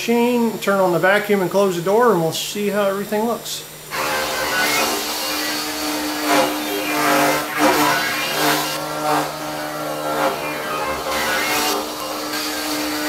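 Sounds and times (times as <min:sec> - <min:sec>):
shop vacuum running: 0:03.6 - 0:13.0
router cutting wood: 0:03.8 - 0:13.0.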